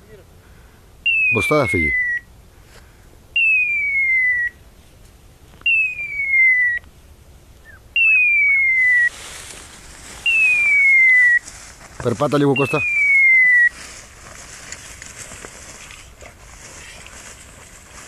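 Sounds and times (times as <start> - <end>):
rustling hiss: 0.0 - 18.0
falling electronic whistle: 3.4 - 4.6, 5.7 - 6.8, 10.2 - 11.4.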